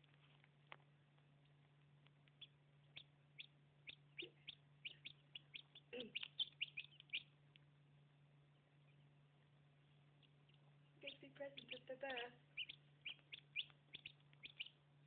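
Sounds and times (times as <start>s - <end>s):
chicks peeping: 0.0s - 15.0s
faint low hum: 0.0s - 15.0s.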